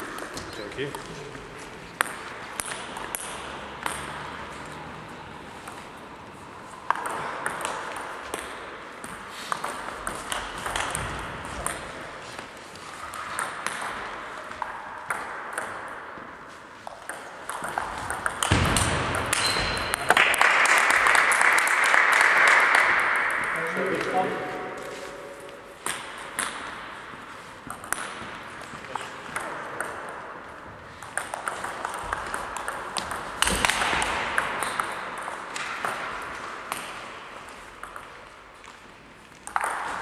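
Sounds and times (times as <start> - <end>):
applause: 20.1 - 24.1.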